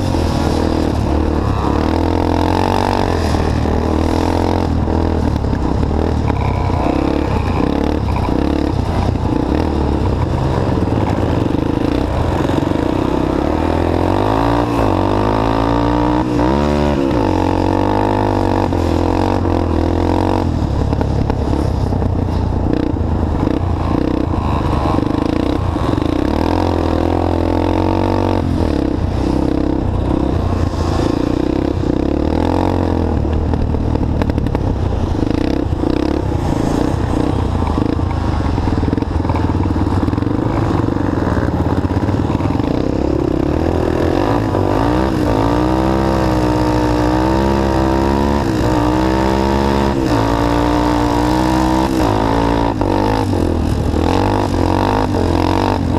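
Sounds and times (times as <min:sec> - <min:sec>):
engine revving under load: 0:22.7 - 0:55.9.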